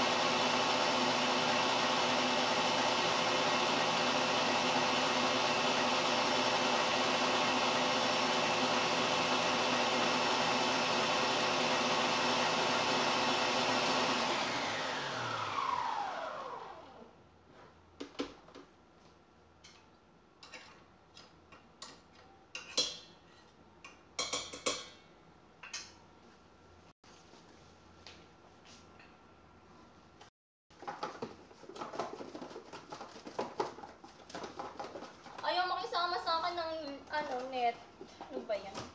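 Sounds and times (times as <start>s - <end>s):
stand mixer running: 0.0s - 17.0s
motor winding down whine: 14.6s - 16.9s.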